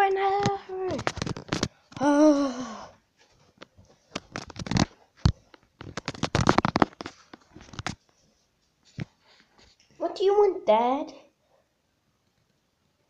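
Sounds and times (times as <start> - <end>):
phone handling rustling and scraping: 0.3 - 2.0, 3.3 - 8.1.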